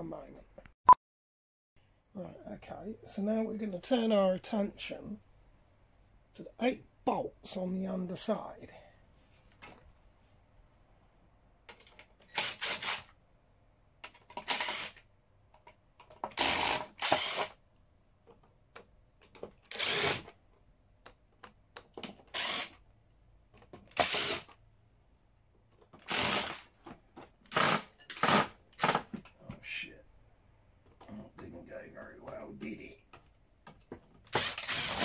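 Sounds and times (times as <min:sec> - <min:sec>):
cordless drill-driver bursts: 0:12.2 - 0:13.1, 0:14.3 - 0:15.0, 0:16.3 - 0:17.6, 0:19.7 - 0:20.3, 0:22.3 - 0:22.8, 0:23.9 - 0:24.6, 0:26.0 - 0:26.7, 0:27.5 - 0:29.1, 0:34.3 - 0:35.0.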